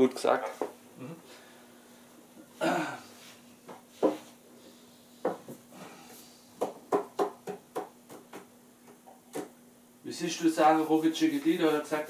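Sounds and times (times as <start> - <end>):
faint steady hum: 0.0 - 12.0
objects knocking on wooden table: 5.2 - 5.6, 6.6 - 9.6.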